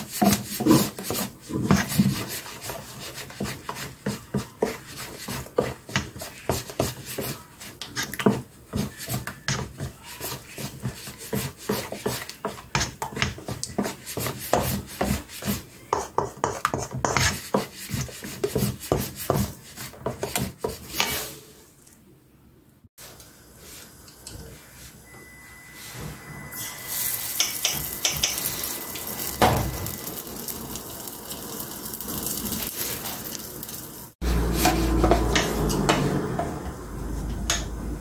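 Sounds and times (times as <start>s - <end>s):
wooden spoon scraping metal bowl: 0.0s - 21.6s, 26.6s - 30.0s, 34.2s - 36.1s.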